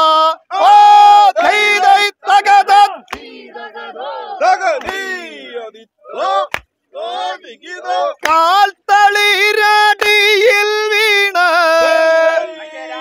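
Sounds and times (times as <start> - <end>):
person singing boat song: 7.0 - 13.0.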